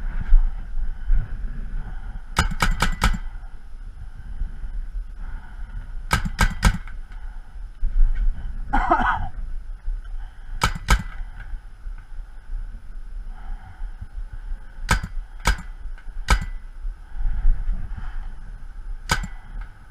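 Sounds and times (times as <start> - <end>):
paintball markers firing: 2.4 - 3.3, 6.1 - 7.0, 10.6 - 11.3, 14.9 - 16.6, 19.1 - 19.6.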